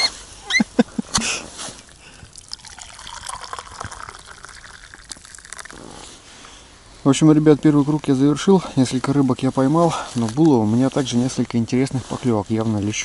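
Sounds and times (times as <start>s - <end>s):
liquid pouring into metal cup: 1.8s - 6.0s.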